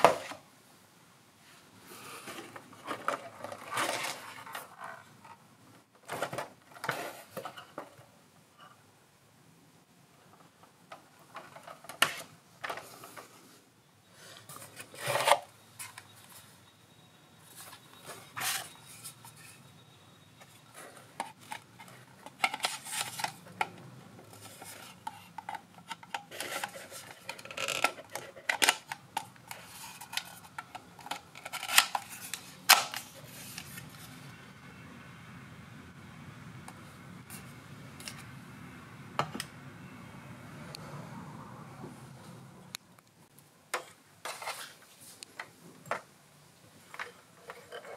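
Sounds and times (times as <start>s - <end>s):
plastic rubbing and scraping: 2.2s - 5.4s, 14.3s - 16.0s, 20.6s - 34.2s.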